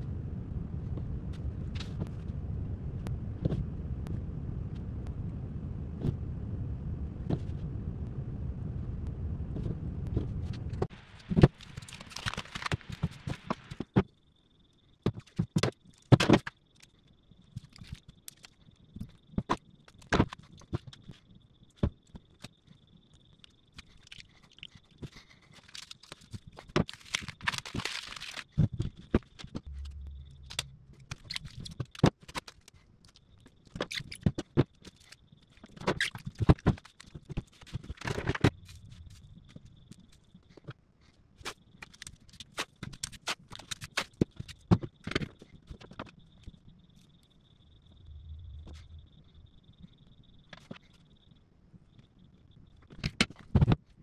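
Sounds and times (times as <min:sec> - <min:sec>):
faint steady high tone: 0:29.7 - 0:31.7.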